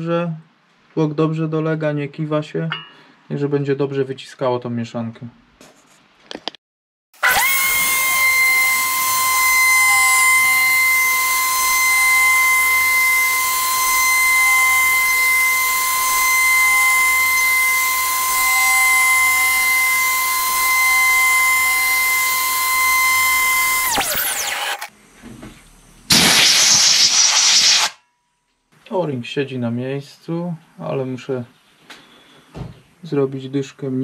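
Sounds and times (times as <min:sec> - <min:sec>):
milling spindle high-pitched whine: 0:07.2 - 0:24.9.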